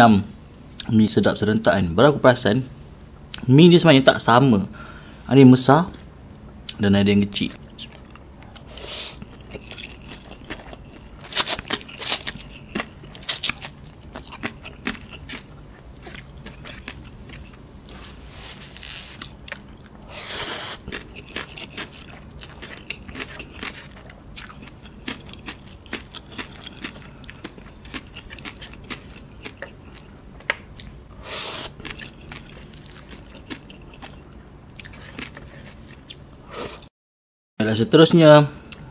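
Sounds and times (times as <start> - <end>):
chewing and lip-smacking: 7.5 - 18.0, 19.2 - 20.1, 20.8 - 31.0, 31.6 - 36.4.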